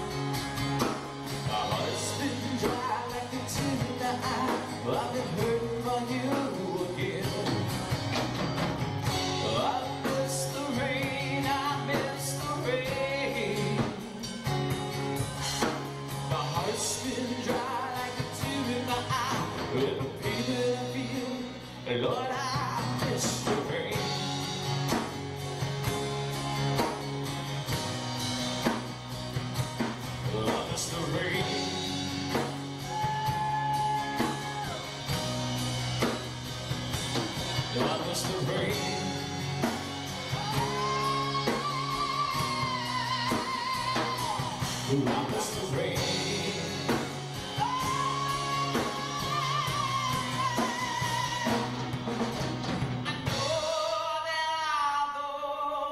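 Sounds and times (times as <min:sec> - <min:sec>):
drum kit: 0:00.0 - 0:55.0
acoustic guitar: 0:00.0 - 0:55.9
man singing with vibrato: 0:01.4 - 0:08.0, 0:09.2 - 0:14.8, 0:15.5 - 0:24.8, 0:30.2 - 0:35.2, 0:37.5 - 0:52.1, 0:53.1 - 0:55.9.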